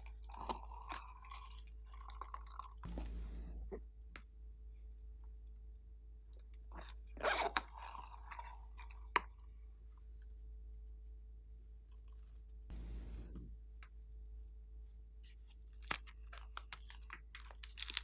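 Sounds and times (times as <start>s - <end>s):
plastic sequins clattering: 16.0s - 18.0s.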